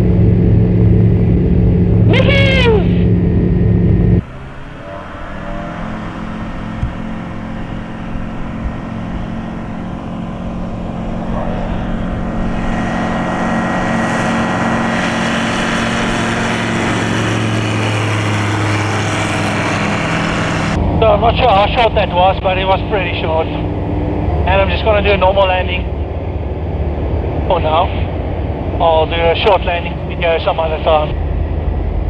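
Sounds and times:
propeller plane engine drone: 0.0s - 32.0s.

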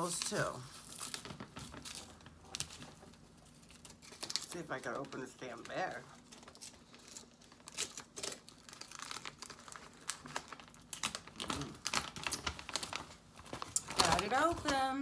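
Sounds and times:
plastic snack bag crackling: 0.0s - 15.0s.

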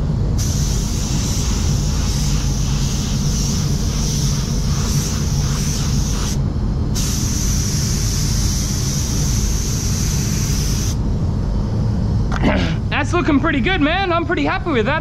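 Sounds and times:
spray gun hissing: 0.4s - 11.0s.

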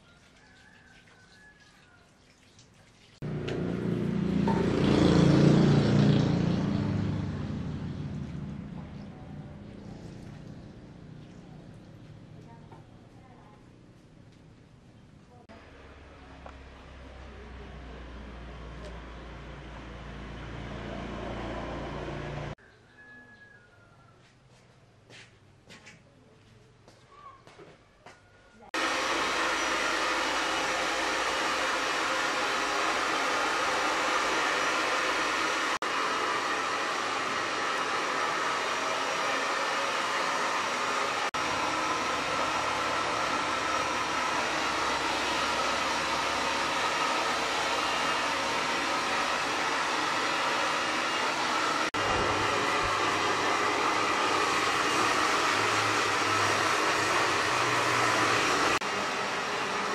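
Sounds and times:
hair dryer blowing: 3.2s - 9.0s, 15.7s - 22.6s, 28.7s - 59.9s.

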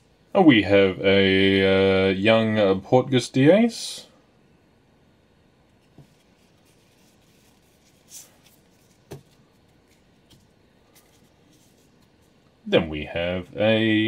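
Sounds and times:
cards tapping: 8.5s - 11.2s.

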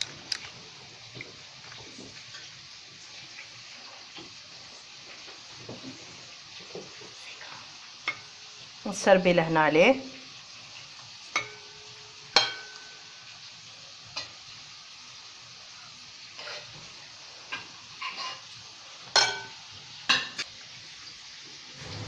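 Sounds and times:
soft steady hiss: 0.0s - 22.0s
metal spoon clinking on bowl: 12.4s - 12.9s.

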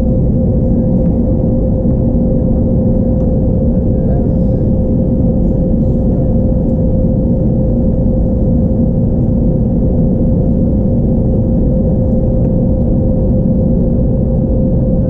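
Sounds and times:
airflow rumble: 0.0s - 15.0s
constant hum: 0.0s - 15.0s
jet engine drone: 0.0s - 15.0s.

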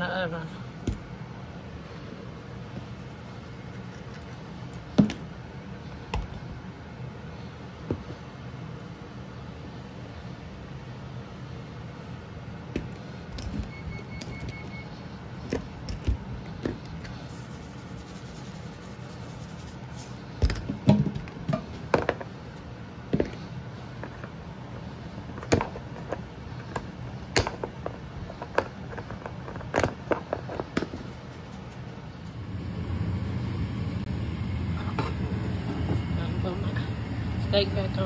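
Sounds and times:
low hum: 31.3s - 38.0s.

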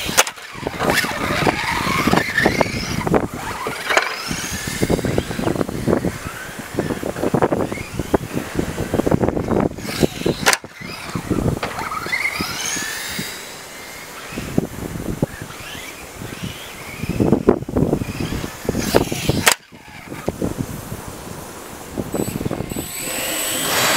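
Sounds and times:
tyres and chassis rattling: 0.0s - 20.6s
rc car motor whine: 0.0s - 23.9s.

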